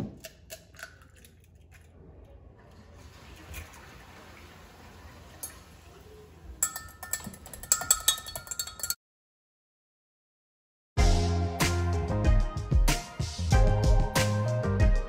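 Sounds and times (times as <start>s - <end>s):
fork clinking against glass cup: 6.6s - 9.0s.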